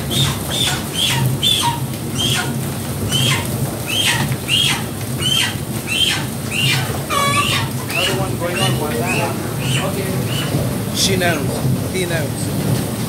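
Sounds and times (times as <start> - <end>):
repeating falling squeak: 6.0 - 10.5.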